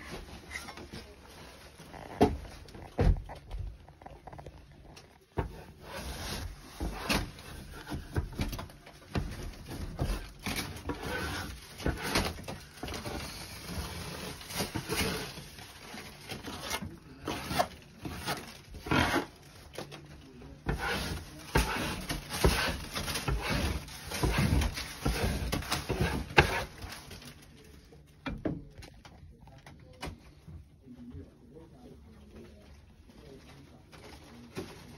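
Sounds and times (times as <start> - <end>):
scraper scraping ceiling texture: 5.4 - 20.0, 20.6 - 27.4.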